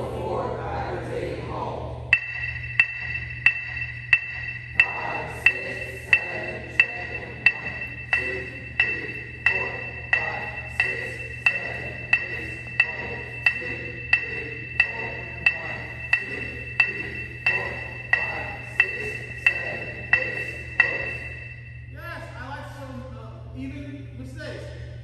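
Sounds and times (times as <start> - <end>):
electronic metronome clicking: 2.1 - 21.9.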